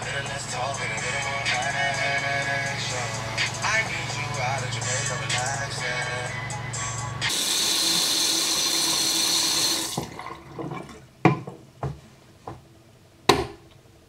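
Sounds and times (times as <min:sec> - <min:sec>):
tap water running into sink: 0:07.3 - 0:11.0.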